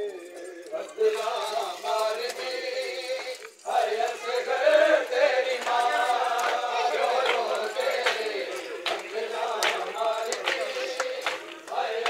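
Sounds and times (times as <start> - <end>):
men chanting a lament: 0.0 - 12.0.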